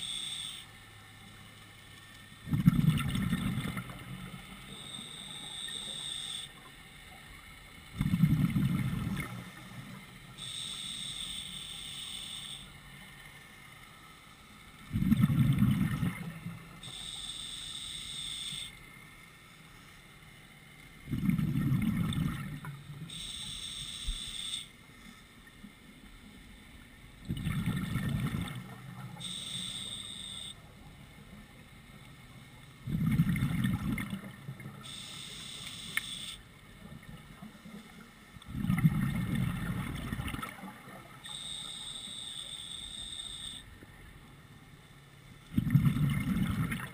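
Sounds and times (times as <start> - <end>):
hissing regulator inhale: 0.0 - 0.7, 10.4 - 12.7, 16.8 - 18.8, 23.1 - 25.2, 29.2 - 30.5, 34.8 - 36.4
exhaled bubbles rumbling: 2.4 - 4.4, 7.9 - 9.4, 14.9 - 16.6, 21.0 - 23.0, 27.2 - 29.2, 32.8 - 34.8, 38.4 - 41.2, 45.5 - 46.9.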